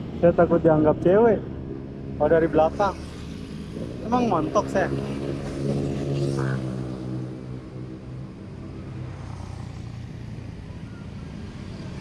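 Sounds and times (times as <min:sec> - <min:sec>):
road and wind rumble: 0:00.0 - 0:12.0
motorcycle engine passing: 0:00.8 - 0:10.3.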